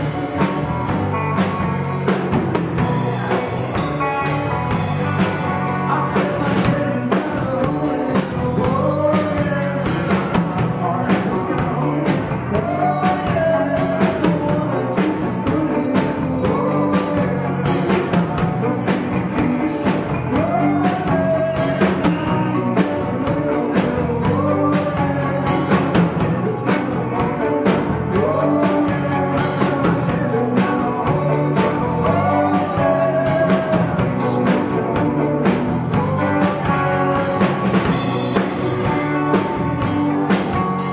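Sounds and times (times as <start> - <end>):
drum kit: 0.0 - 40.9
electric bass: 0.0 - 40.9
electric guitars: 0.0 - 40.9
man singing: 0.0 - 40.9.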